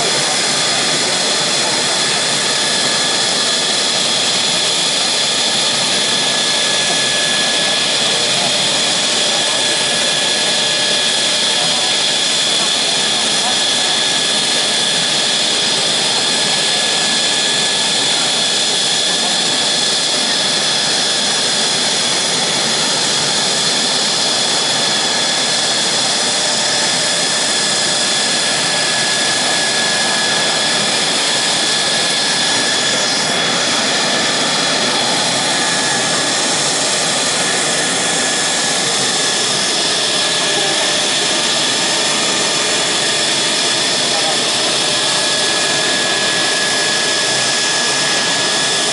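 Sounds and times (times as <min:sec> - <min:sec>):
jet engine running: 0:00.0 - 0:48.9.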